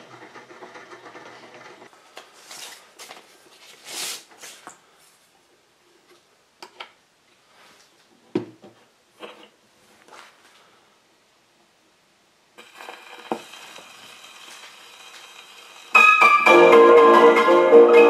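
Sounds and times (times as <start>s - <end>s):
rustling and scraping: 0.6s - 6.3s, 7.4s - 10.7s.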